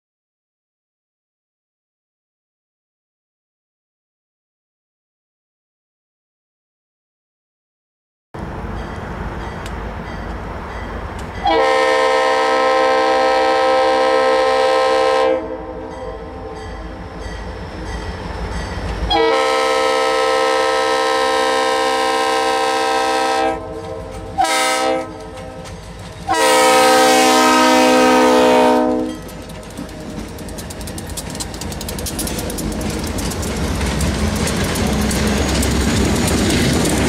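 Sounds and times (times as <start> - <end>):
train air horn blasts: 11.4 - 17.2, 19.1 - 25.7, 26.3 - 29.3.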